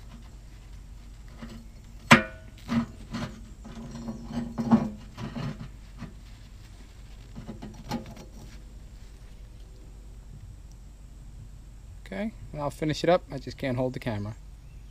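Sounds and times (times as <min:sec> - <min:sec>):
paper towel rubbing on metal: 0:02.6 - 0:09.2
light clicks and knocks: 0:07.2 - 0:08.6.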